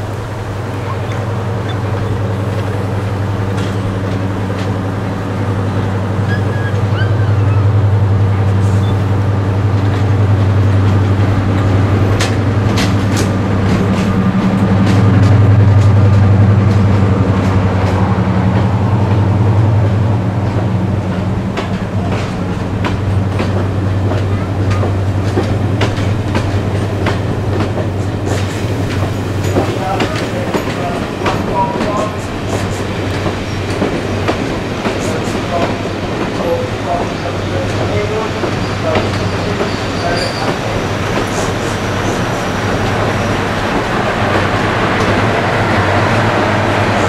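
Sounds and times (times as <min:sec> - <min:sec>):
diesel locomotive droning: 0:00.0 - 0:47.0
wheels clicking over rail joints: 0:19.8 - 0:46.9.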